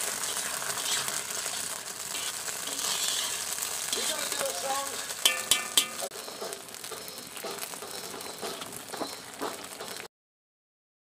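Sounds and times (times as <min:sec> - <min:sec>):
food sizzling in oil: 0:00.0 - 0:10.1
short ringing tone: 0:06.0 - 0:10.1.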